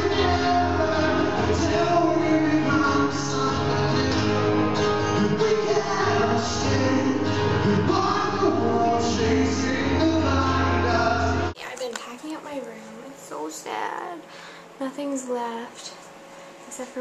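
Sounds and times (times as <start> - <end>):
man singing into microphone: 0.0 - 11.6
acoustic guitar: 0.0 - 11.9.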